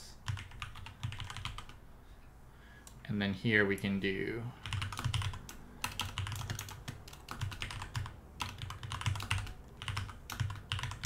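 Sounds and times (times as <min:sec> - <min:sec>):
keyboard typing: 0:00.2 - 0:01.8, 0:04.6 - 0:11.0.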